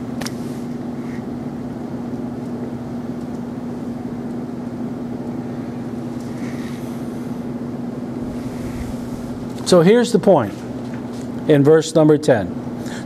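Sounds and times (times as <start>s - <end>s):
constant low hum: 0.0s - 13.0s.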